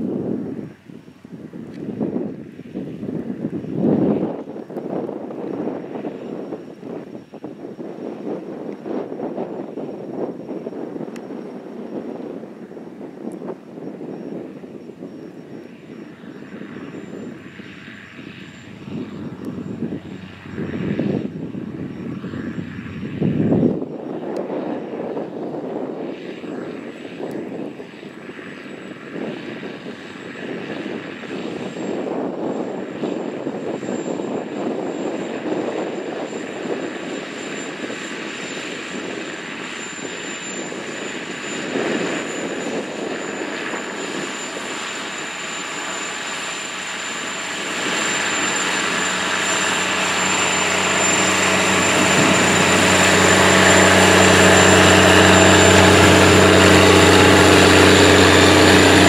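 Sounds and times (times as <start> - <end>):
tractor diesel engine drone: 40.7 - 59.0.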